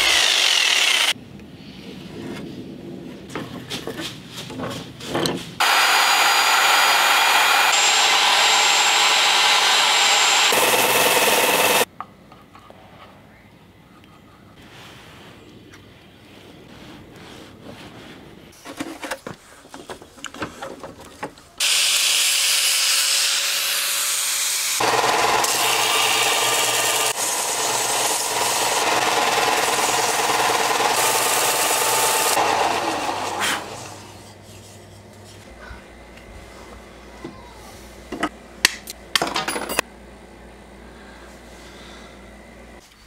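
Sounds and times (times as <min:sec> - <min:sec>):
belt sander grinding wood: 0:00.0 - 0:01.2, 0:05.6 - 0:11.9, 0:21.6 - 0:34.5
wood being handled: 0:16.7 - 0:21.6.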